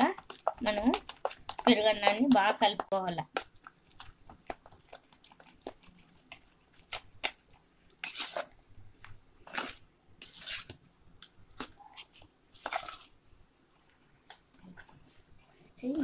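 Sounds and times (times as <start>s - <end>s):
hand mashing wet rice: 0.0s - 10.8s.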